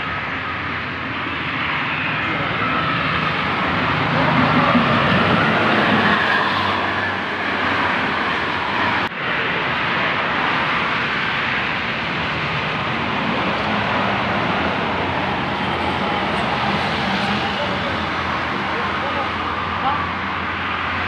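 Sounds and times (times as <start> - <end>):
bus passing at speed: 0.0 - 21.0
steady road noise: 0.0 - 21.0.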